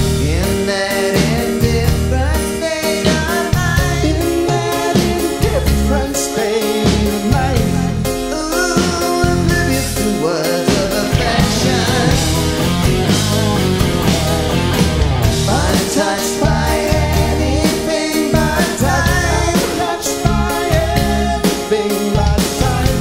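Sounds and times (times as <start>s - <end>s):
live rock band playing: 0.0s - 23.0s.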